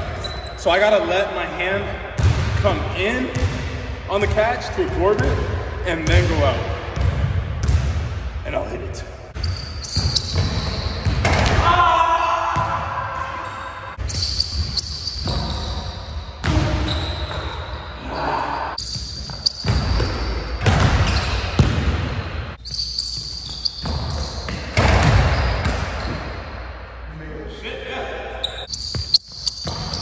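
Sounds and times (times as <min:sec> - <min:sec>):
basketball bouncing on hardwood: 0:19.6 - 0:22.2.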